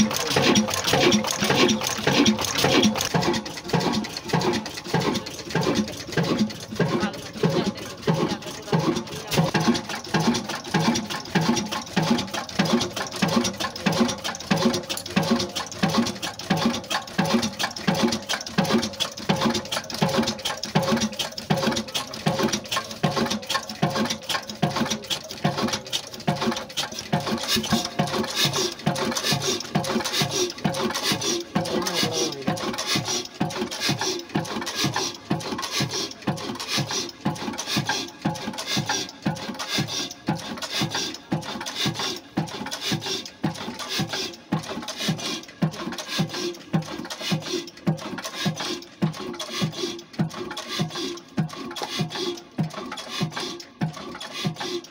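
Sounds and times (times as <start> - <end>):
diesel engine clattering: 0.0 - 54.9.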